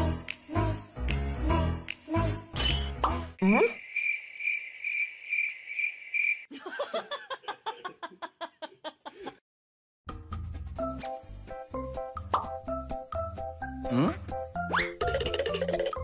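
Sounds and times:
cricket chirping: 3.4s - 6.5s.

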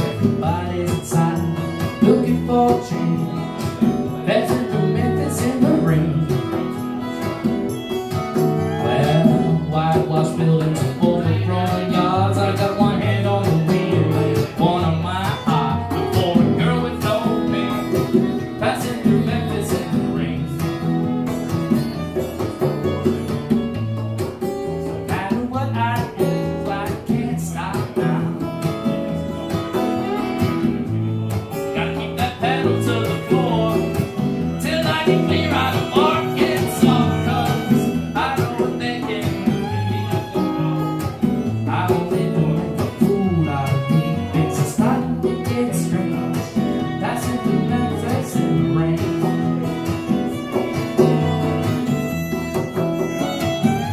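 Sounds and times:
man singing: 0.0s - 7.5s, 8.4s - 21.2s, 24.9s - 51.4s
congas: 0.0s - 53.9s
strummed acoustic guitar: 0.0s - 53.9s
violin: 0.0s - 53.9s.

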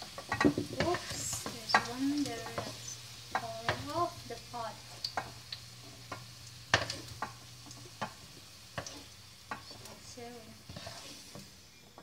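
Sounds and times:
faint oil sizzle: 0.0s - 12.0s
spatula scraping pan: 0.1s - 4.2s, 4.9s - 12.0s.

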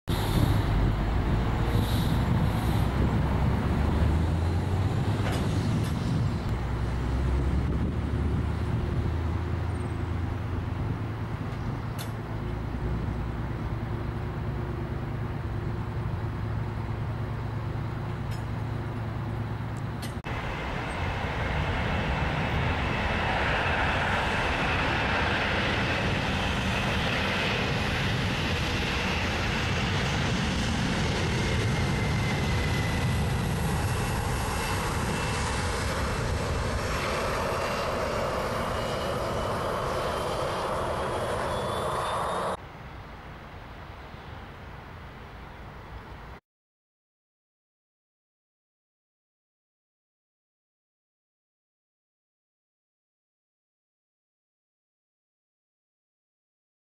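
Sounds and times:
jet engines roaring: 0.1s - 42.6s
whining fan tones: 0.1s - 42.6s.

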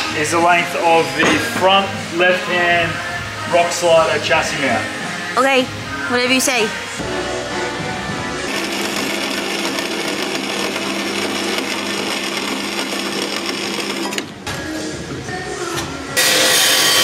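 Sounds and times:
band saw motor hum: 8.4s - 14.3s, 16.2s - 17.0s
saw blade rasping through steel: 16.2s - 17.0s.

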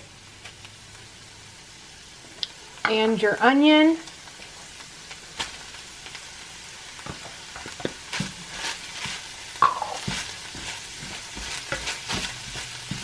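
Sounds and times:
meat sizzling in skillet: 0.0s - 13.0s
spatula scraping and knocking pan: 7.0s - 13.0s.

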